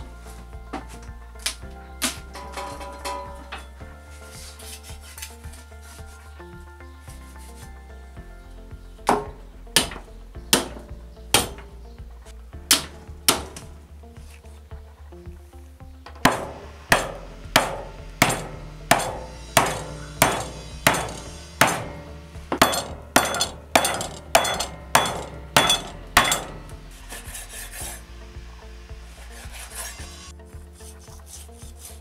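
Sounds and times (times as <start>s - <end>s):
hatchet chopping on wooden board: 9.1s - 11.7s, 12.7s - 13.7s, 16.2s - 22.0s
knife sawing through meat: 29.2s - 32.0s.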